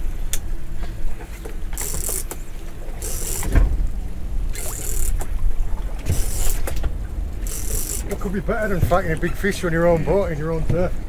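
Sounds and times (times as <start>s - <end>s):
wind and sea rumble: 0.0s - 11.0s.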